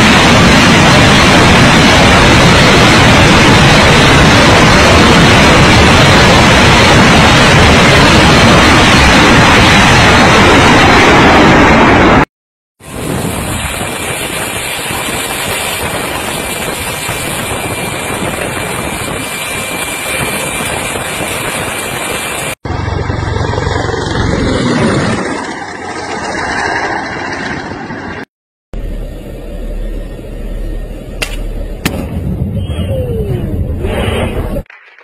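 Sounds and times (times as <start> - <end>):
helicopter running: 0.0 - 12.2, 12.8 - 34.6
vehicle engine rumble: 12.8 - 34.7.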